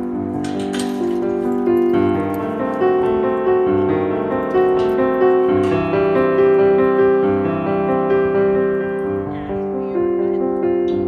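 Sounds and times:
piano music sustained notes: 0.0 - 11.0.

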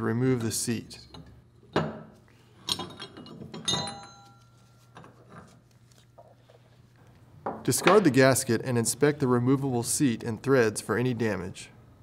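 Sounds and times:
metal clinking and knocking: 1.1 - 5.6.

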